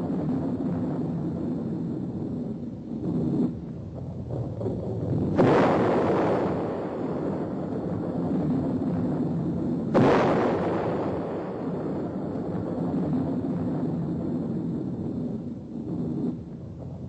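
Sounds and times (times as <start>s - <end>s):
deep explosion rumble: 0.0s - 17.0s
sudden explosion blast: 4.3s - 16.0s.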